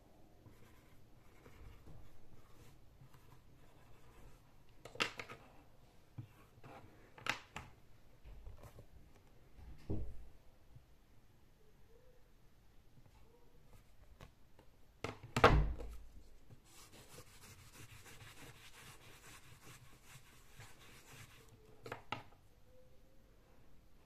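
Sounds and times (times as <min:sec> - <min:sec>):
soft rubbing on tabletop: 0:00.4 - 0:04.5, 0:16.2 - 0:21.7.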